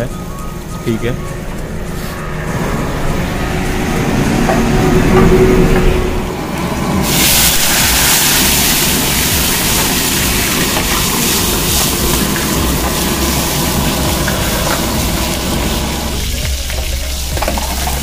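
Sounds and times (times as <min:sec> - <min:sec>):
gas burner running: 0:06.3 - 0:18.0
chicken sizzling in hot oil: 0:07.0 - 0:18.0.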